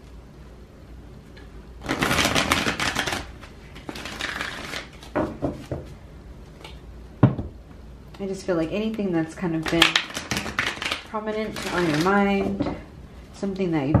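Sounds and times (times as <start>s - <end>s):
cards being shuffled: 1.8s - 5.2s, 9.6s - 12.4s.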